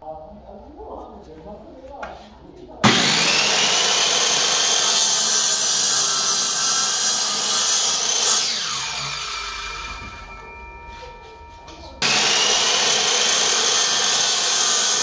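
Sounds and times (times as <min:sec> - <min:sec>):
miter saw cutting wood: 0:02.8 - 0:10.6, 0:11.8 - 0:15.0
saw blade spinning down: 0:02.8 - 0:10.6, 0:12.0 - 0:15.0.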